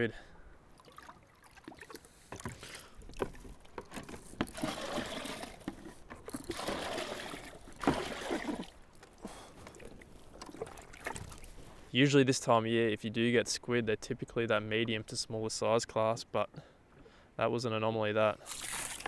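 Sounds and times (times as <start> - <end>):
water sloshing and pouring: 0.7 - 11.8, 18.4 - 19.0.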